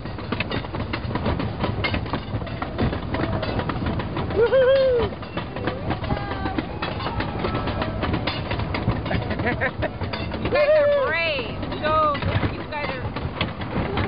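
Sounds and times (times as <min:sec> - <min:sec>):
roller coaster clattering on track: 0:00.0 - 0:14.0
rider shouting woohoo: 0:04.4 - 0:05.1, 0:10.5 - 0:11.2.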